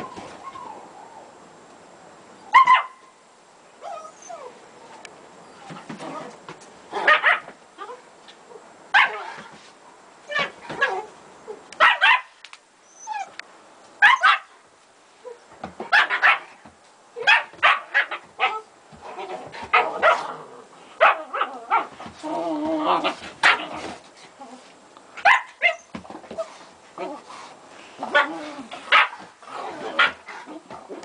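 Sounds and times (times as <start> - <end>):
dog whining: 0.0 - 1.3, 3.8 - 4.6, 12.8 - 13.4
dogs barking and yipping: 2.5 - 3.0, 7.0 - 8.0, 8.9 - 9.4, 11.8 - 12.4, 14.0 - 14.5, 15.8 - 16.6, 17.2 - 20.4, 21.0 - 22.0, 25.2 - 26.5, 28.1 - 30.5.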